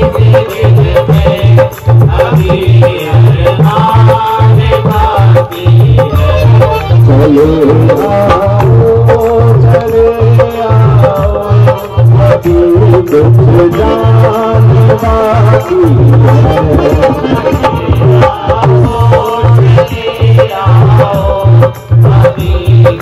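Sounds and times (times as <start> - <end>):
dholak drum beat: 0.0 - 23.0
harmonium: 0.0 - 23.0
person singing: 0.0 - 23.0
hand clapping: 8.1 - 10.5.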